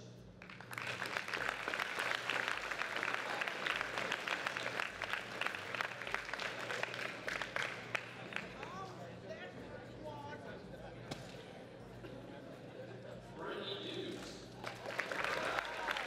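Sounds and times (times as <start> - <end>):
large audience applauding: 0.4 - 8.8, 14.6 - 16.0.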